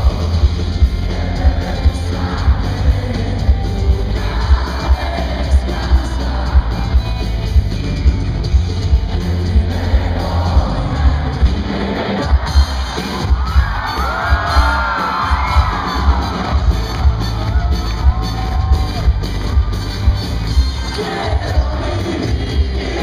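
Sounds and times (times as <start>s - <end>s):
person singing: 0.0s - 7.2s, 20.8s - 23.0s
boomy bass: 0.0s - 23.0s
live rock band: 0.0s - 23.0s.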